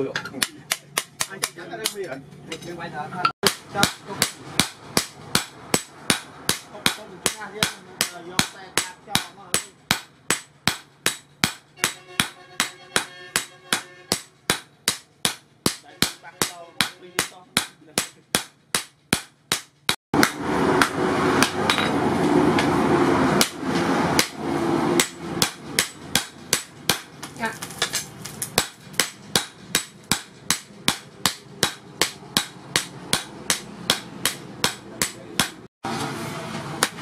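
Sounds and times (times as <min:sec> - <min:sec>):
hammer striking steel on anvil: 0:03.4 - 0:22.0, 0:23.4 - 0:35.7.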